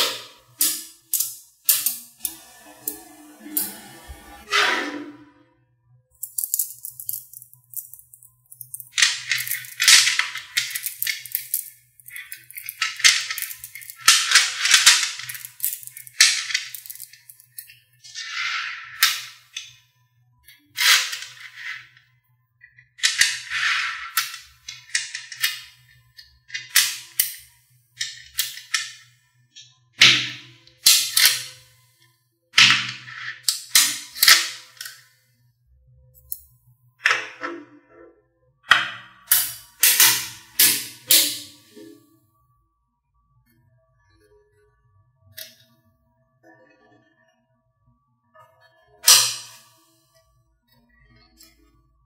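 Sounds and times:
magnetic balls clicking: 0:06.1 - 0:17.7.

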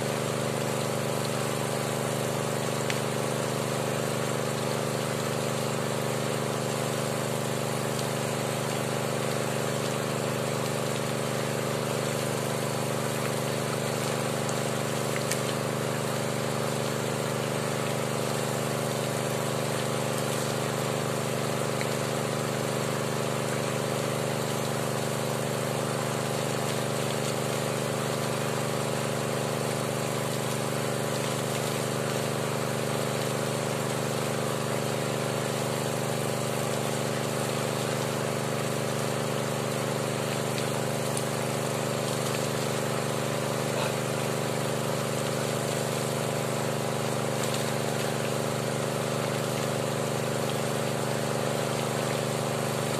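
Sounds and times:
petrol water pump running: 0:00.0 - 0:52.9.

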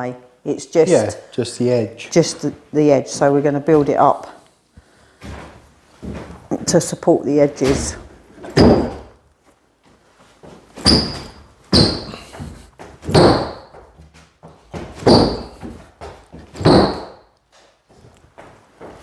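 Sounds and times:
heavy thuds on wooden floor: 0:07.6 - 0:09.2, 0:10.8 - 0:17.2.

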